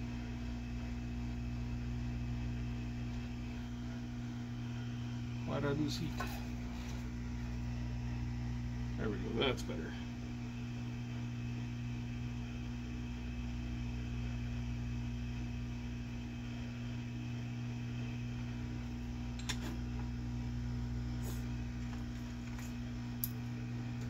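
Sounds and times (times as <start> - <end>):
motor hum: 0.0 - 24.0.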